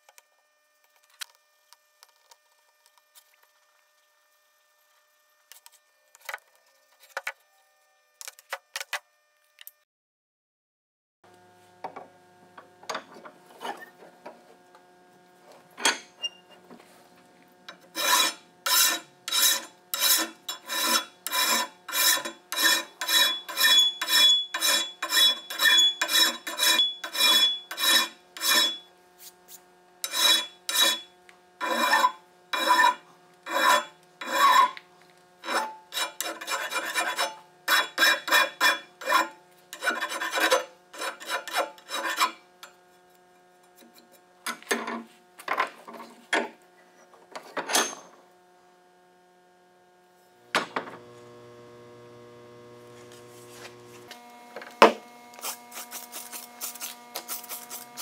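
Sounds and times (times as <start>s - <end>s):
hand file rasping on steel: 17.7s - 28.9s, 30.0s - 34.8s, 35.4s - 42.4s, 55.3s - 58.0s.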